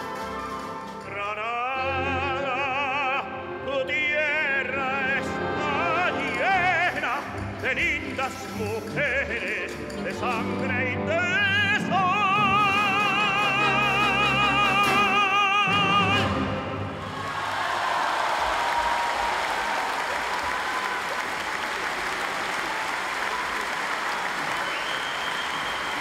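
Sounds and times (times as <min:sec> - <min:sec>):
string orchestra: 0:00.0 - 0:17.2
male opera singer: 0:00.5 - 0:16.9.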